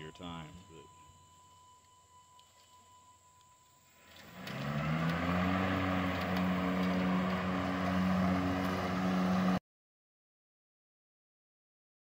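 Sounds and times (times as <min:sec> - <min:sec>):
electric mower blade motors whirring: 0:03.9 - 0:09.6.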